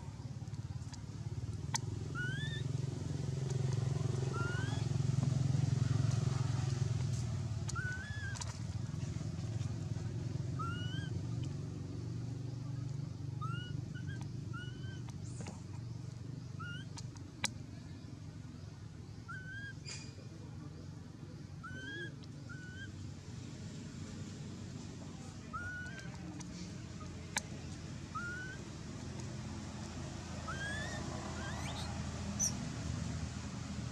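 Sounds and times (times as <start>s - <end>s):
rising chirping calls: 1.6s - 5.0s, 7.6s - 8.5s, 10.5s - 11.2s, 13.4s - 15.2s, 16.5s - 17.2s, 19.1s - 20.1s, 21.6s - 23.1s, 25.4s - 33.0s.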